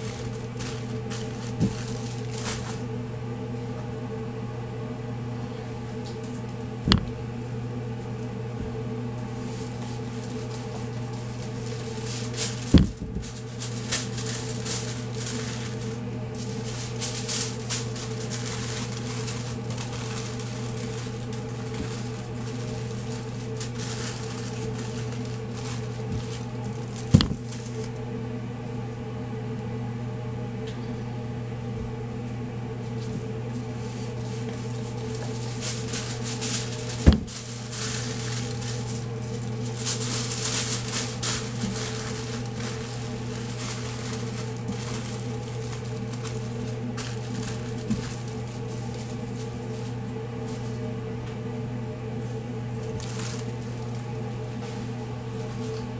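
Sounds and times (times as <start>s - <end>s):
aluminium foil crinkling: 0.0s - 2.9s, 9.4s - 28.0s, 32.9s - 50.9s, 52.3s - 55.9s
mechanical hum: 0.0s - 55.9s.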